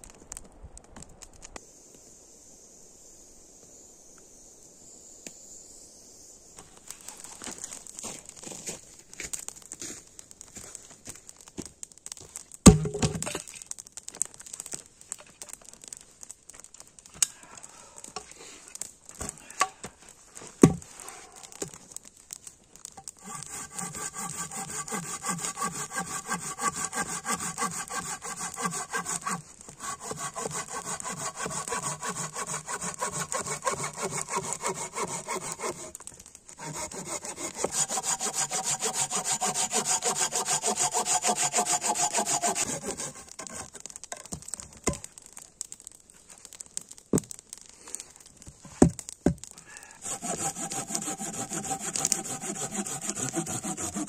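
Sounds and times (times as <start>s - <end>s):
hand saw cutting through log: 23.2s - 43.8s, 50.0s - 54.0s.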